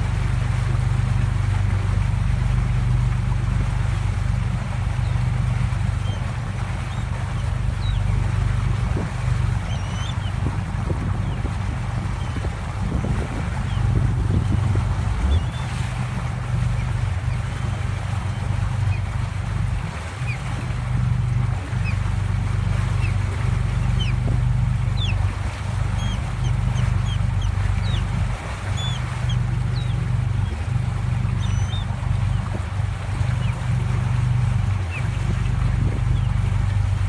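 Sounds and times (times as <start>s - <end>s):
boat engine rumbling: 0.0s - 37.0s
birds chirping: 4.4s - 37.0s.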